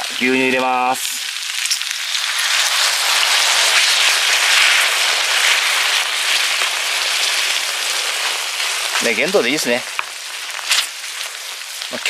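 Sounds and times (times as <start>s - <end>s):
loud sizzling in pan: 0.0s - 12.0s.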